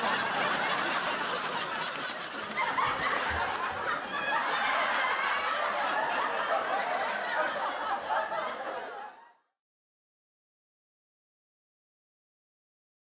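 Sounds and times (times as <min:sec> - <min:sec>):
sitcom laugh track: 0:00.0 - 0:09.5.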